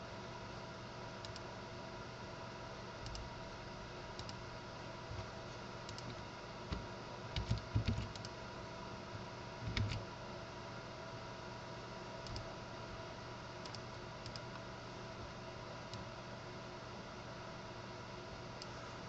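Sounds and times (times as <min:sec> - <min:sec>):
faint steady hum: 0:00.0 - 0:19.0
computer keyboard and mouse clicks: 0:01.2 - 0:01.4, 0:03.0 - 0:03.2, 0:04.2 - 0:04.4, 0:05.9 - 0:08.4, 0:09.6 - 0:10.0, 0:12.2 - 0:12.5, 0:13.6 - 0:14.6.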